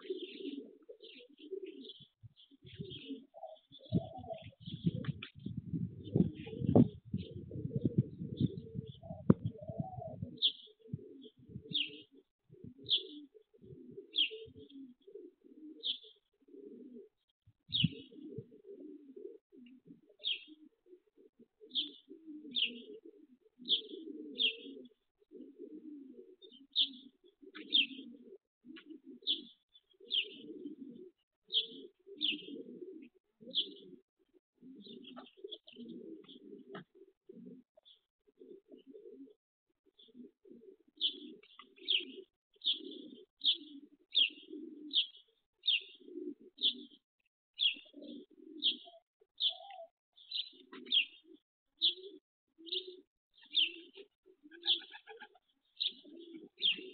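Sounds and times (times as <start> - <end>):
pigeons cooing: 0.0 - 56.9
small bird chirping: 48.6 - 52.0, 52.7 - 56.9.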